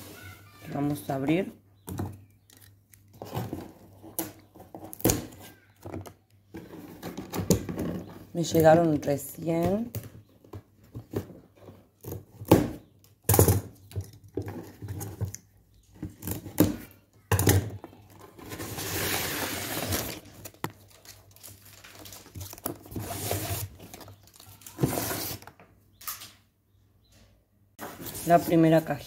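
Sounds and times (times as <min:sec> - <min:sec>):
cardboard tearing: 0:18.4 - 0:25.5
packaging crinkling: 0:18.4 - 0:25.5.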